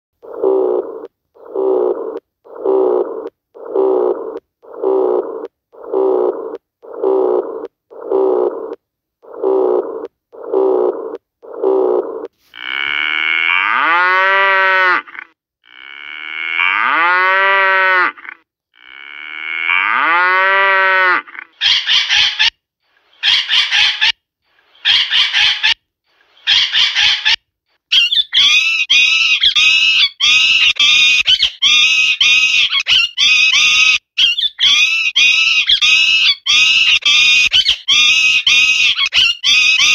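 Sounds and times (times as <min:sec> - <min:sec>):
cow mooing: 0:09.4 - 0:21.4
shrill high-pitched animal calls: 0:21.2 - 0:25.8, 0:26.4 - 0:39.9.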